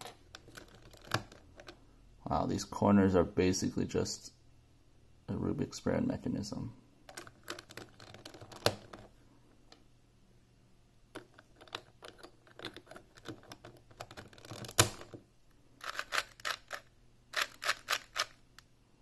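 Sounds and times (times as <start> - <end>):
plastic cube pieces clicking: 15.8 - 18.4.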